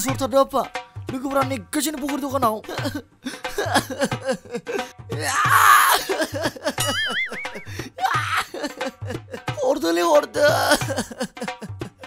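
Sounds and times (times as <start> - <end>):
person speaking over music: 0.0 - 3.0, 9.5 - 11.1
background music with beat: 0.0 - 12.0.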